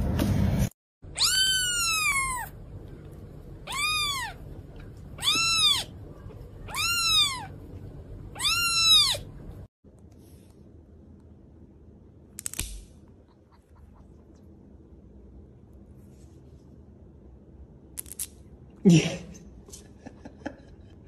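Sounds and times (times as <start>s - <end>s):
kitten meowing: 1.2s - 2.5s, 3.6s - 4.4s, 5.2s - 5.9s, 6.6s - 7.6s, 8.3s - 9.3s.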